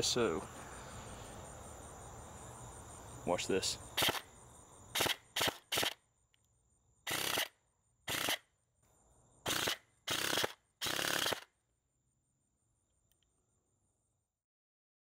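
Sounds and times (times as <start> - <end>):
crickets chirping: 0.0 - 14.4
airsoft gun full-auto bursts: 4.0 - 4.3, 4.9 - 6.0, 7.1 - 8.5, 9.4 - 11.5.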